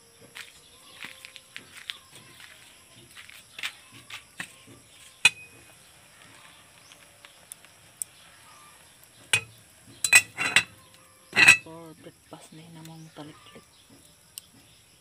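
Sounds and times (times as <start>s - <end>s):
sharp metallic clink: 9.4s - 10.8s.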